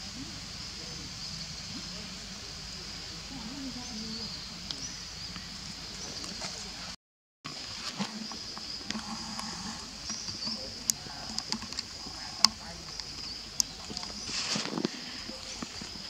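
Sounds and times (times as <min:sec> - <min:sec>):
faint chirps: 0:00.0 - 0:07.0, 0:07.6 - 0:16.0
high-pitched insect buzz: 0:08.0 - 0:14.4.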